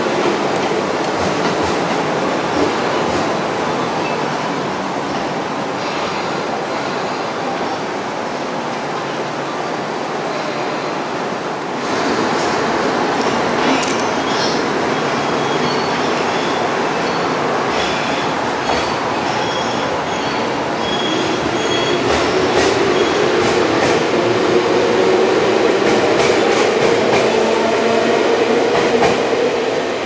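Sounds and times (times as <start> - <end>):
train wheels clacking: 0.0 - 3.4, 17.7 - 24.1
train cars rumbling: 0.0 - 30.0.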